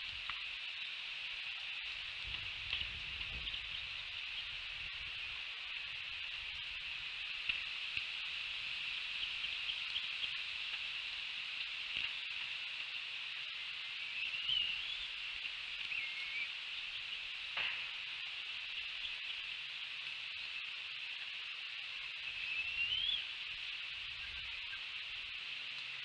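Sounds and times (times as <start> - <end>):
steady high-pitched hiss: 0.0 - 26.0
faint bird chirps: 13.6 - 26.0.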